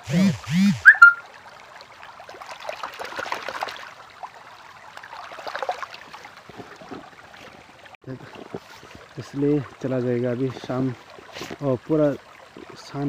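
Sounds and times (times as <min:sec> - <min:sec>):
stream trickling over rocks: 0:00.8 - 0:13.0.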